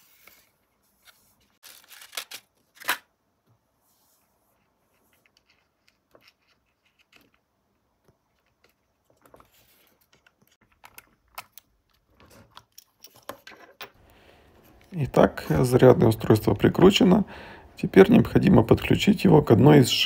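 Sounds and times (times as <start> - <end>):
hands handling small parts: 4.5 - 15.1.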